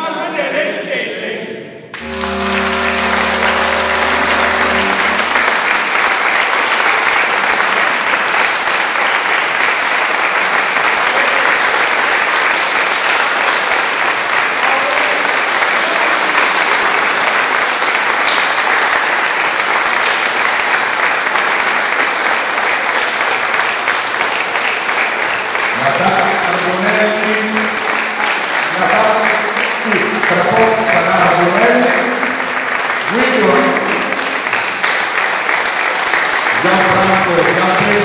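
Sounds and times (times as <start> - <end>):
musicians holding final chord: 2.0 - 6.5
audience applauding: 2.0 - 38.0.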